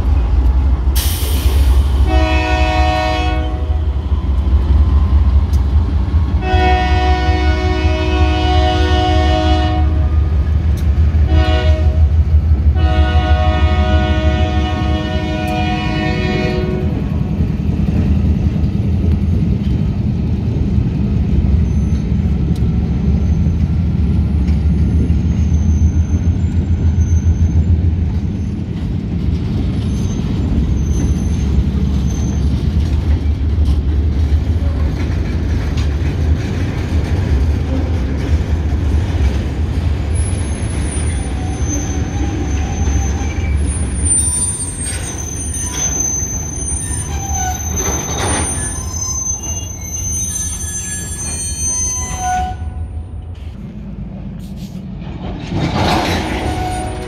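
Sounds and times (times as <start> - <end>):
train wheels rolling: 0.0 - 52.5, 53.1 - 57.0
diesel locomotive rumble: 0.0 - 57.0
high wheel squeal: 25.2 - 28.7, 29.8 - 32.6, 40.2 - 52.8.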